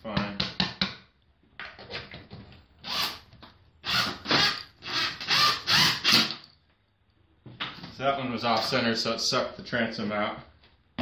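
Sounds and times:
power drill driving screw: 2.8s - 6.4s.

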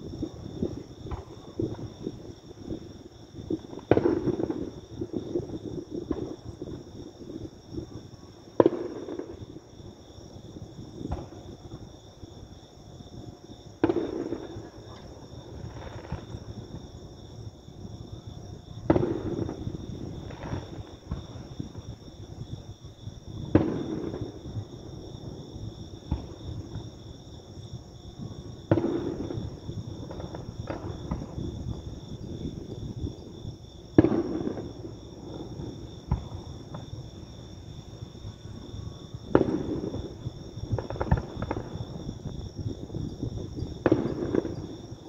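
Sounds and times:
distant fireworks booms: 0.0s - 45.0s
fireworks cracks and pops: 0.1s - 2.8s, 3.6s - 6.8s, 8.6s - 9.6s, 11.0s - 11.8s, 13.8s - 16.8s, 18.8s - 21.7s, 23.4s - 24.7s, 28.2s - 31.9s, 34.0s - 37.0s, 39.3s - 45.0s.

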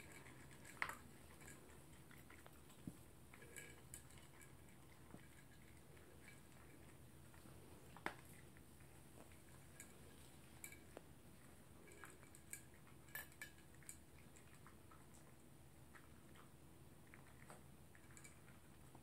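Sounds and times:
dog eating from bowl clinks: 0.0s - 2.5s, 3.3s - 7.0s, 9.3s - 11.0s, 11.8s - 14.7s, 17.1s - 19.0s.

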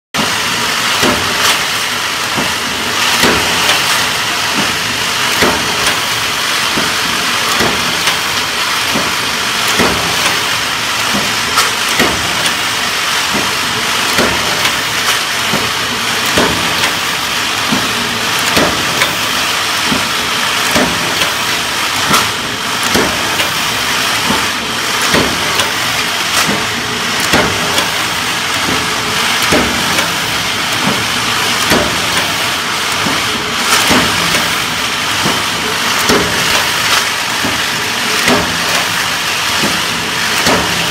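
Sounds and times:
steady loud hiss: 0.2s - 40.9s.

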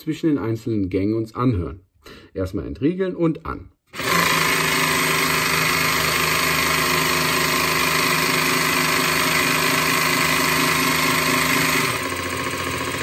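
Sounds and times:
jigsaw running: 3.9s - 13.0s.

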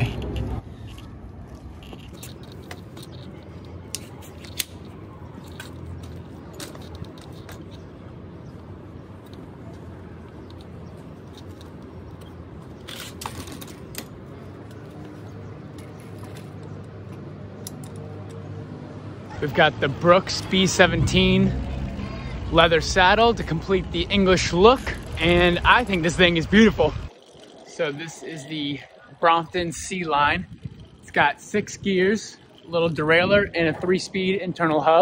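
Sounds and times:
folding bike hinges clicking: 1.8s - 7.9s, 10.4s - 18.5s.

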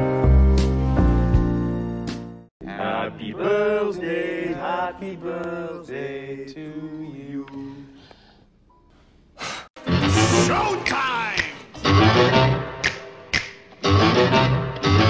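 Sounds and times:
voices singing: 2.6s - 8.0s.

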